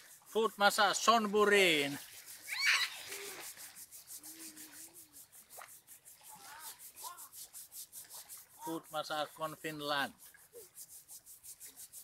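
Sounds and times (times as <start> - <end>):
hand rubbing sand off foot: 0.0 - 12.0.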